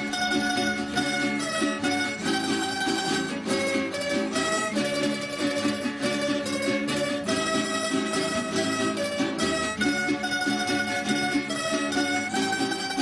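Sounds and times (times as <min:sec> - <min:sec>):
plucked string ensemble: 0:00.0 - 0:13.0.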